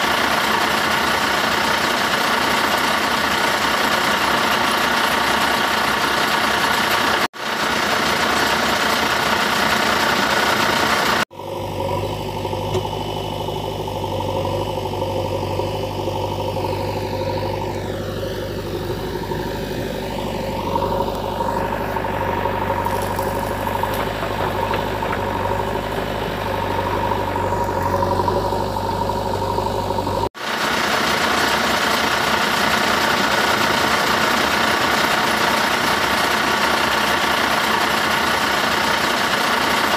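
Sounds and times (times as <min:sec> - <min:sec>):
vehicle engine idling: 0:00.0 - 0:39.9
deeper humming engine: 0:08.3 - 0:38.4.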